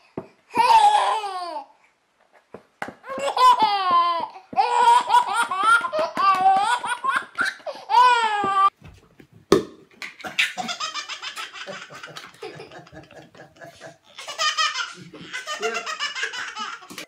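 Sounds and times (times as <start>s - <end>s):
baby laughing: 3.0s - 8.7s, 10.1s - 17.0s
sharp pop: 9.5s - 9.8s.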